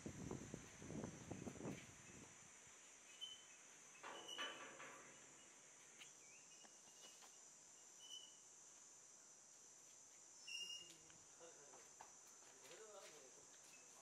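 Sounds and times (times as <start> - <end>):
high insect drone: 0.0 - 14.0
bird chirps: 3.1 - 3.6, 5.4 - 8.4.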